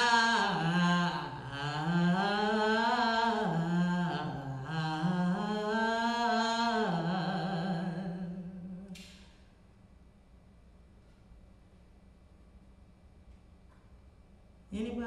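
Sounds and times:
woman humming: 0.0 - 9.0.

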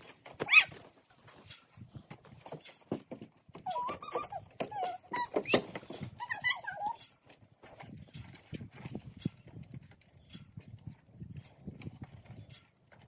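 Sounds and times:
skin squeaking on plastic slide: 3.6 - 7.0.

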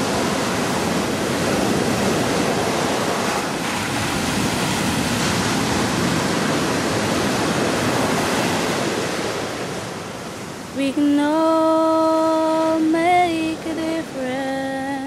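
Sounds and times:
wind buffeting microphone: 0.0 - 10.8
surf rushing on beach: 0.0 - 15.0.

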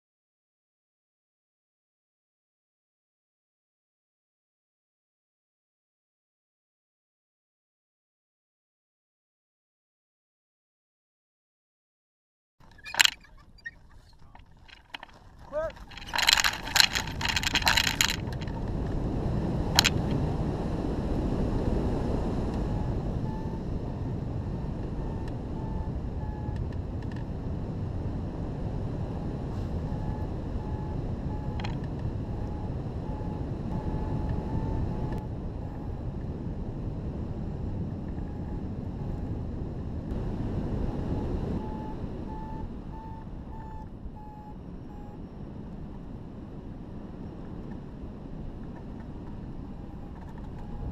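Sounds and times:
rustling and clatter: 12.6 - 19.0, 19.7 - 20.2
variometer beeping: 12.7 - 18.8, 19.7 - 20.2, 22.5 - 23.8, 24.4 - 27.3, 29.8 - 36.0, 40.6 - 46.2, 48.9 - 50.9
wind rushing over microphone: 12.7 - 50.9.

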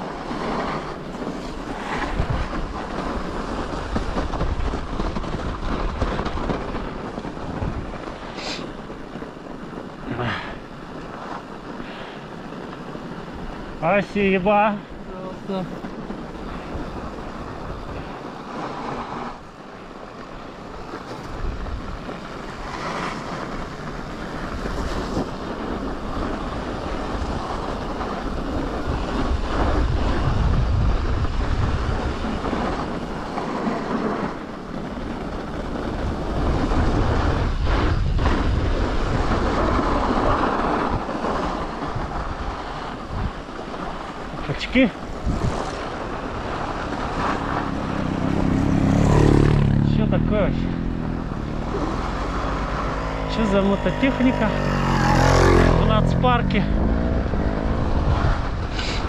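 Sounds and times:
wind buffeting microphone: 0.0 - 59.0
low rumble: 45.1 - 59.0.

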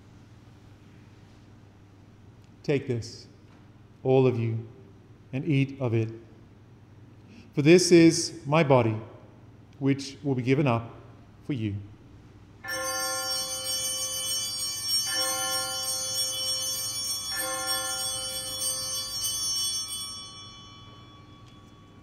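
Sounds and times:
altar bell ringing: 12.6 - 22.0.

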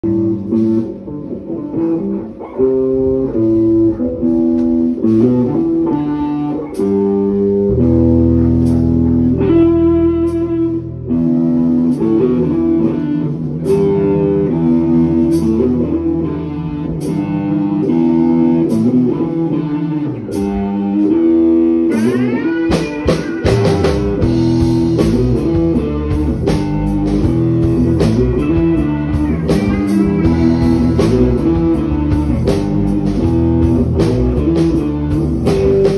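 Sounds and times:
bass notes: 0.0 - 35.9
drums: 0.0 - 35.9
electric guitar riff: 0.0 - 35.9.

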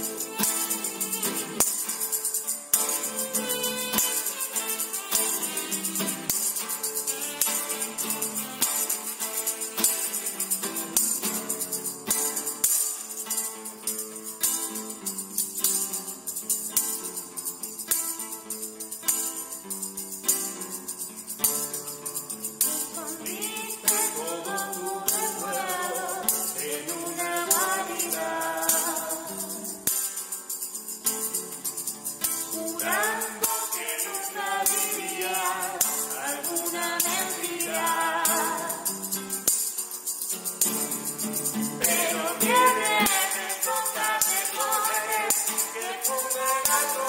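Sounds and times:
classical guitar playing: 0.0 - 47.0
hand percussion beat: 0.0 - 47.0
person singing: 22.6 - 29.8, 32.4 - 39.1, 41.7 - 47.0.

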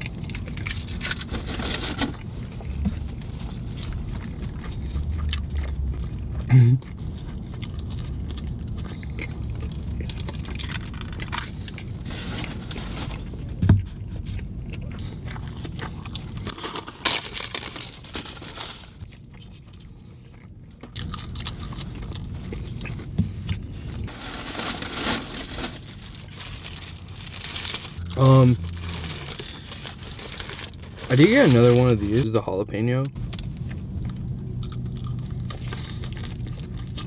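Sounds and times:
low steady hum: 0.0 - 37.0
person biting and chewing food: 2.1 - 18.1, 18.9 - 24.1, 33.3 - 37.0.

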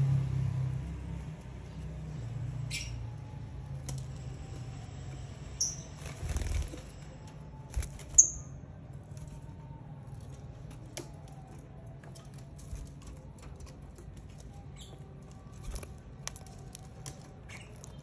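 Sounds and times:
bird wings fluttering: 5.8 - 7.0.

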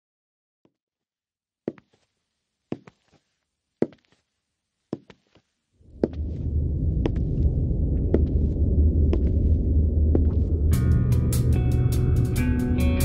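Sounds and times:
high heel footsteps: 1.7 - 6.3
loud low droning hum: 5.8 - 13.0.

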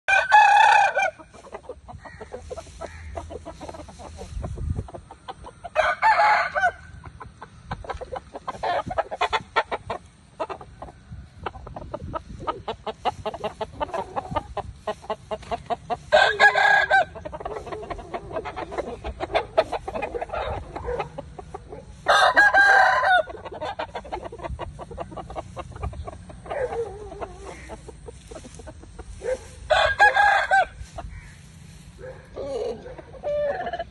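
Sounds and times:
roosters crowing: 0.1 - 4.3, 5.5 - 7.2, 13.1 - 33.9
soft clucking: 1.1 - 5.7, 7.0 - 16.1, 17.0 - 21.9, 23.2 - 29.6.

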